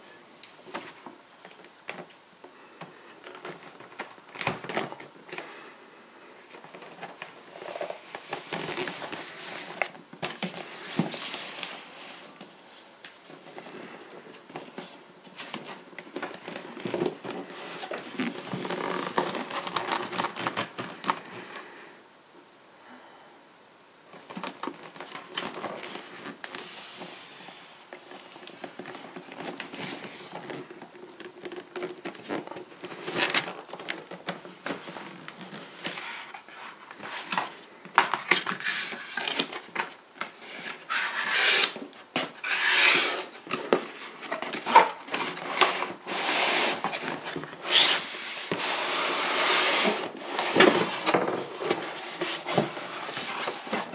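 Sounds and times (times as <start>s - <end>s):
cardboard box rustling and scraping: 38.2s - 53.9s.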